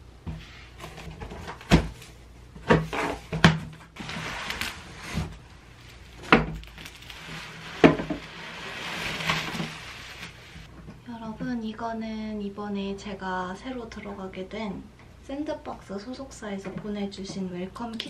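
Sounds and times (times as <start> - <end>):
cardboard scraping and rustling: 0.7 - 10.7
bubble wrap crinkling: 4.0 - 10.7.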